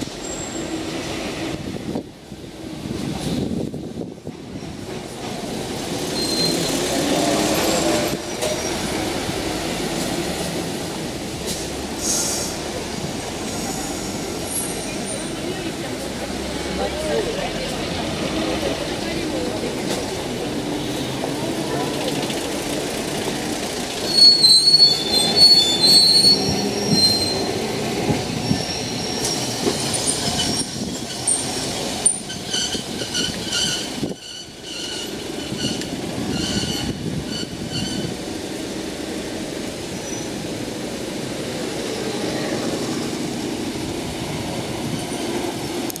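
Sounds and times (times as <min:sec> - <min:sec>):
tram wheels squealing on rail: 0:00.0 - 0:01.9, 0:04.4 - 0:16.0, 0:19.3 - 0:38.6, 0:39.6 - 0:40.6, 0:41.5 - 0:43.4
street traffic: 0:00.0 - 0:46.0.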